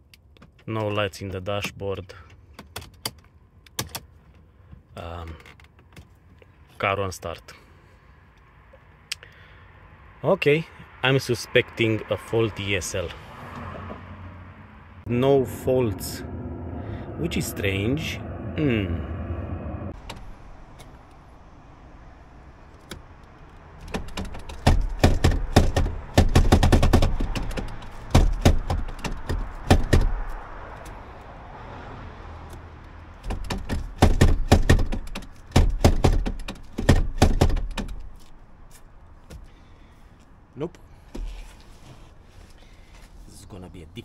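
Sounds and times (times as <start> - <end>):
rapid knocks and clunks: 23.8 - 30.4, 33.2 - 38.3.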